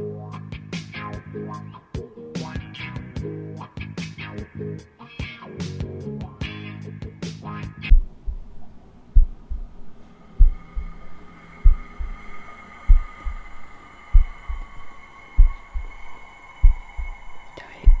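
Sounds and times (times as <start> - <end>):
heartbeat thumps: 7.9 - 18.0
steady high ringing tone: 10.0 - 18.0.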